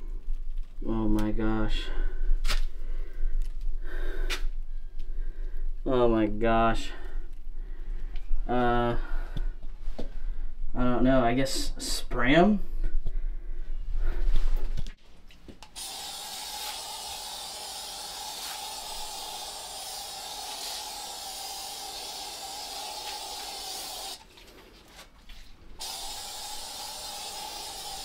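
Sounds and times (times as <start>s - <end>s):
aerosol spray can hissing: 15.6s - 24.2s, 25.8s - 28.0s.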